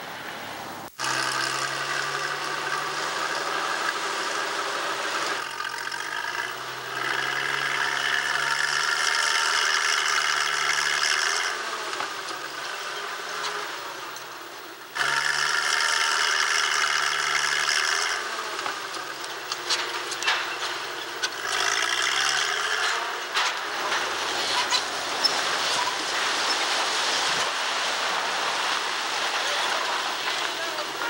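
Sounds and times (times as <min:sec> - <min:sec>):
crane engine revving: 0:00.8 - 0:31.0
cable grinding against masonry: 0:01.0 - 0:31.0
masonry collapsing rush and knocks: 0:18.6 - 0:31.0.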